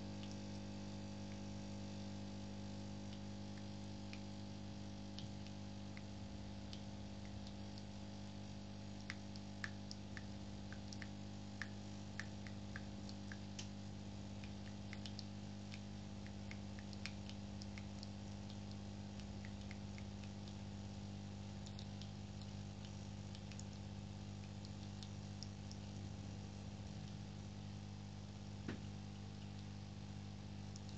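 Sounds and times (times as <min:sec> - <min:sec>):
faint ticks: 0:00.0 - 0:27.7, 0:28.3 - 0:30.9.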